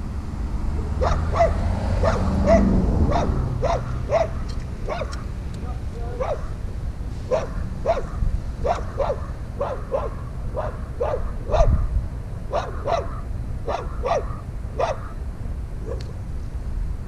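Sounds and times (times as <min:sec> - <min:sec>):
dog barking: 0:00.8 - 0:05.3, 0:06.1 - 0:06.6, 0:07.3 - 0:15.2, 0:15.8 - 0:16.1.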